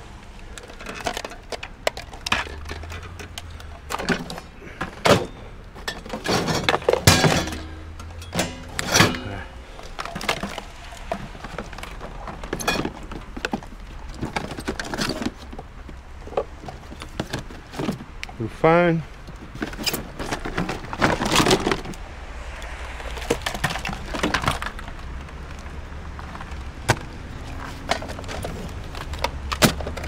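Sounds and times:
junk clattering and rattling: 0:00.0 - 0:18.4, 0:19.1 - 0:22.0, 0:22.9 - 0:30.0
loud thunks: 0:03.9 - 0:10.7.

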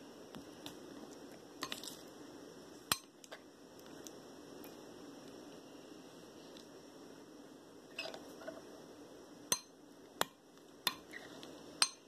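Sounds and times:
metal spoon clinking on glass bowl: 0:11.8 - 0:12.0.

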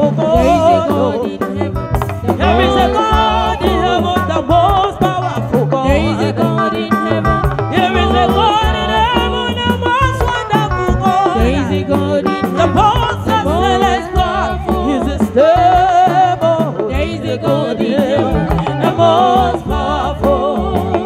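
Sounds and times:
live band music: 0:00.0 - 0:21.0
women singing: 0:00.0 - 0:21.0.

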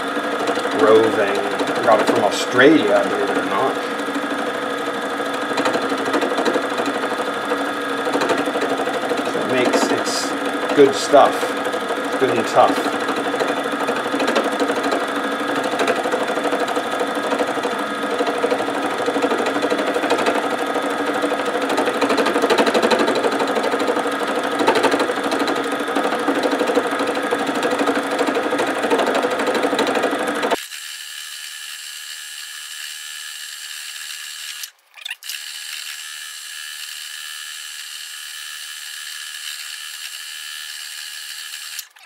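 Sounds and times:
felting machine needles punching: 0:00.0 - 0:30.9.

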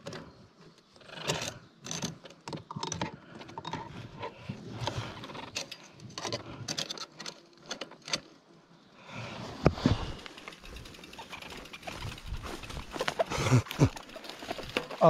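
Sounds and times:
bicycle chain clicking and rattling: 0:00.9 - 0:04.3, 0:10.1 - 0:15.0.

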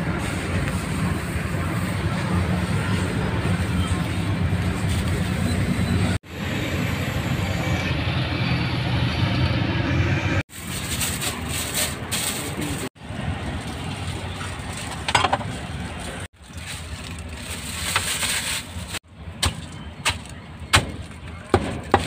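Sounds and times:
outdoor street noise: 0:00.0 - 0:22.0.

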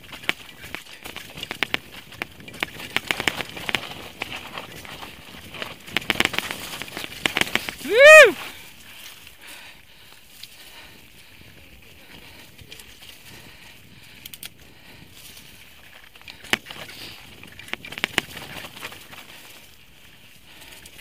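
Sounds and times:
bike clacking over rocks: 0:00.0 - 0:08.0, 0:16.2 - 0:19.6
bike tyres rolling on dirt: 0:00.0 - 0:21.0.

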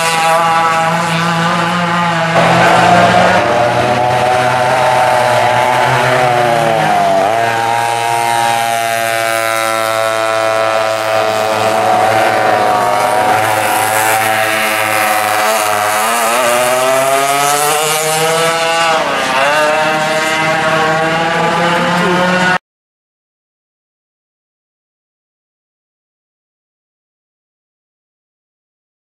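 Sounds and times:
racing kart engines: 0:00.0 - 0:22.6.

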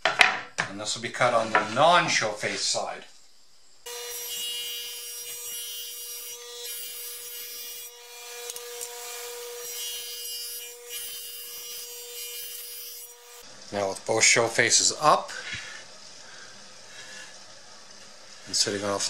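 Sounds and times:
table saw cutting wood: 0:03.9 - 0:13.5.

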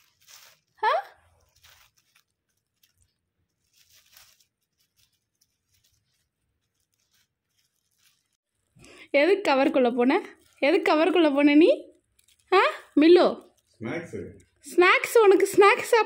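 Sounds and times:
plastic bag crinkling: 0:00.0 - 0:08.8, 0:09.5 - 0:13.8
soft rustles and crunches: 0:00.0 - 0:08.8, 0:09.9 - 0:11.3, 0:11.9 - 0:13.8.

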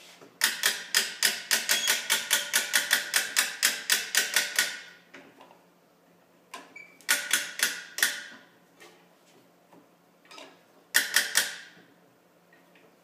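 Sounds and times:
ratcheting winch clicks: 0:00.4 - 0:04.9, 0:11.0 - 0:11.7.

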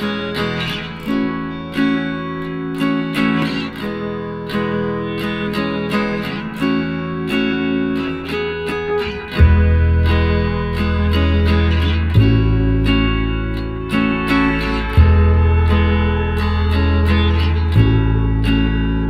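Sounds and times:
plucked guitar: 0:00.0 - 0:19.0
deep low note: 0:12.1 - 0:19.0.

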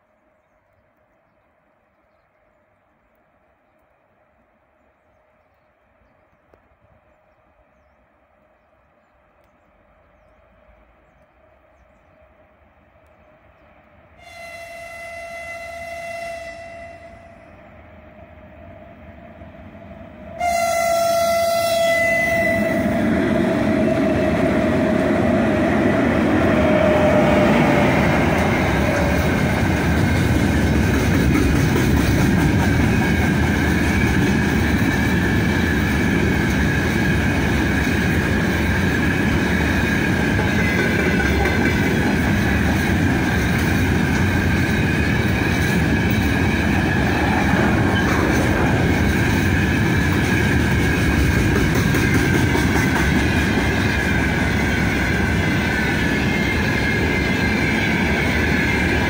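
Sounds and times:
locomotive horn blast: 0:14.2 - 0:17.6, 0:20.4 - 0:23.0
train wheels rumbling on rails: 0:15.6 - 0:59.0.

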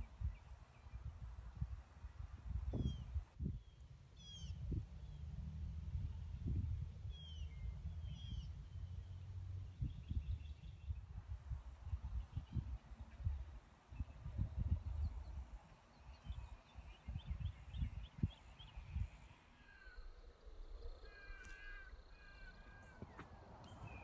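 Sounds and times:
wind buffeting microphone: 0:00.0 - 0:03.7, 0:04.3 - 0:19.3.

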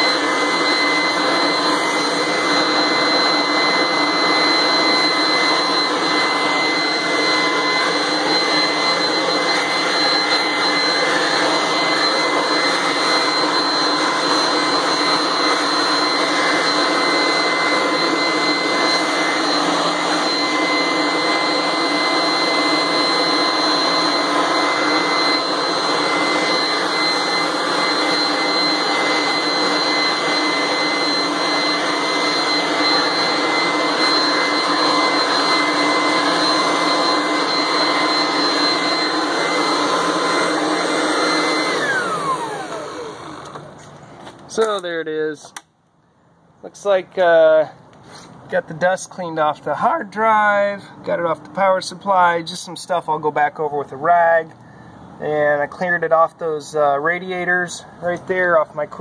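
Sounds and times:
leaf blower running: 0:00.0 - 0:45.6, 0:48.0 - 0:48.5.

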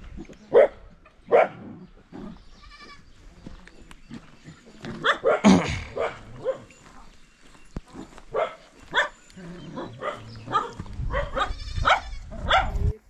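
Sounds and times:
dog barking: 0:00.5 - 0:01.7, 0:05.0 - 0:06.7, 0:08.3 - 0:13.0.

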